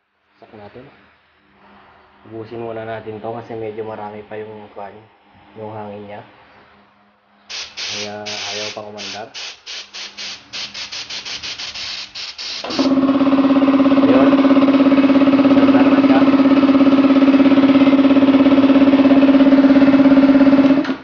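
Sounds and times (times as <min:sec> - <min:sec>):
spray gun air bursts: 0:07.5 - 0:13.0
air compressor motor humming: 0:07.5 - 0:21.0.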